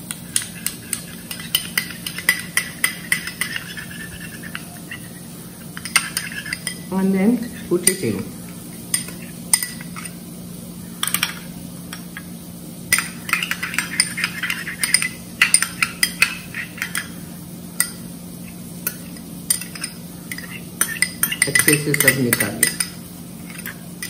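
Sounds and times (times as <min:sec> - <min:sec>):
whisk clinking against glass bowl: 0:00.3 - 0:06.9, 0:07.8 - 0:08.2, 0:08.8 - 0:10.2, 0:12.9 - 0:17.2, 0:18.8 - 0:24.0.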